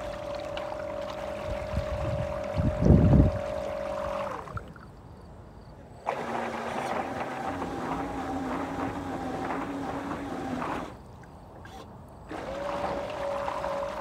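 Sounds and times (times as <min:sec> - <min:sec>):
electric motor whining: 0:00.0 - 0:04.6, 0:06.1 - 0:11.0, 0:11.6 - 0:14.0
water wash: 0:00.0 - 0:04.9, 0:06.1 - 0:11.3.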